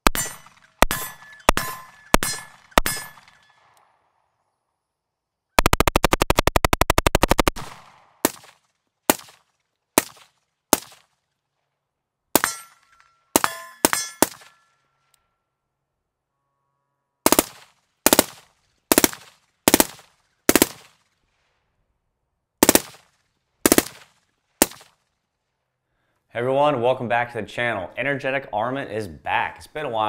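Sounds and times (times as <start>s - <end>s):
short metallic ring: 0.1s - 3.6s, 12.4s - 15.6s
suppressed rifle gunshots: 5.6s - 11.1s, 17.3s - 21.0s, 22.6s - 24.9s.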